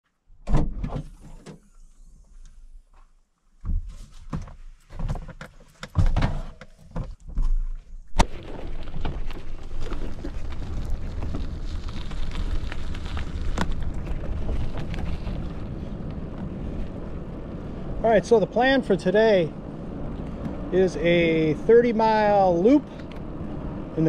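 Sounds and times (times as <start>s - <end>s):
bicycle knocking and thumping: 3.6s - 7.5s
bicycle tyres on gravel: 7.6s - 24.0s
wind on the camera: 8.0s - 24.0s.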